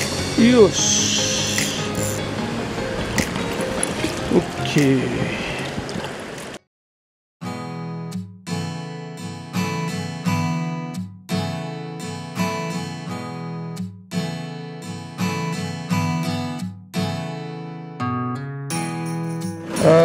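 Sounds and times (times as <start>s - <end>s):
acoustic guitar strumming chords: 0.0s - 5.1s, 7.4s - 20.0s.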